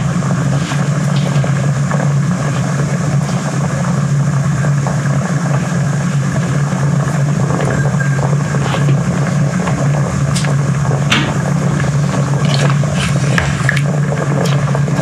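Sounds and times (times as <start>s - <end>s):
low machine hum: 0.0s - 15.0s
clicks and knocks: 10.4s - 12.8s.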